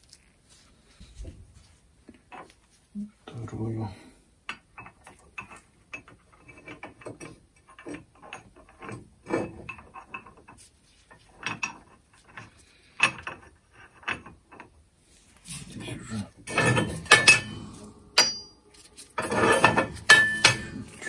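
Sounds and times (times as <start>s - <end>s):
metal parts clinking on metal: 16.5s - 21.0s.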